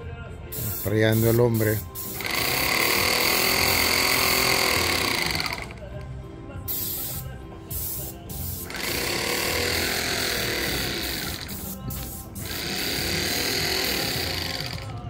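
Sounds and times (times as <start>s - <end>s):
spray gun hissing: 0.6s - 5.6s, 6.7s - 14.8s
sprayer pump pulsing: 2.2s - 5.8s, 8.7s - 15.0s.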